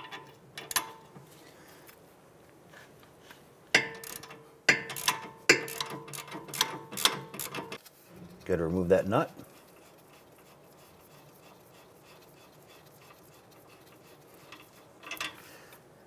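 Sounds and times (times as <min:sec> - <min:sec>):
ratchet wrench clicking: 0:03.8 - 0:07.8, 0:14.4 - 0:15.4.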